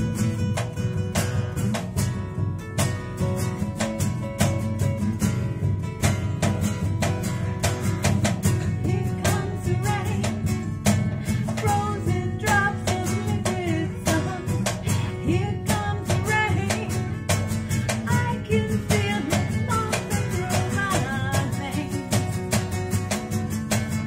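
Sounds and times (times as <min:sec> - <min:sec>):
acoustic guitars strumming: 0:00.0 - 0:24.0
woman singing: 0:08.2 - 0:22.8.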